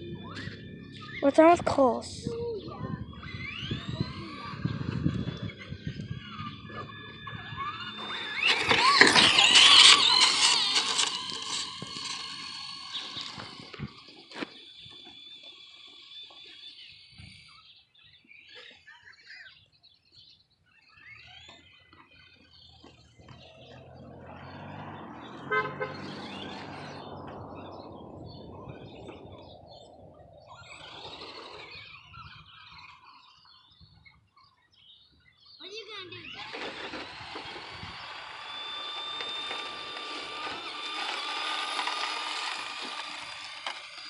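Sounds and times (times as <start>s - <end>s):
faint high whine: 0.0s - 17.7s, 36.1s - 44.0s
vehicle driving past: 23.1s - 31.8s.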